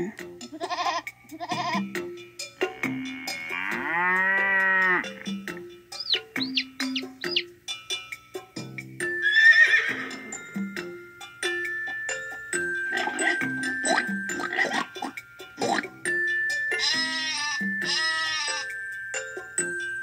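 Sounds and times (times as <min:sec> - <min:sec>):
recorded farm animal calls: 0:00.4 - 0:02.0, 0:02.6 - 0:07.6, 0:12.6 - 0:15.9, 0:16.7 - 0:18.8
light plinking tune: 0:01.6 - 0:20.0
high chirps: 0:05.1 - 0:07.6, 0:09.0 - 0:19.7.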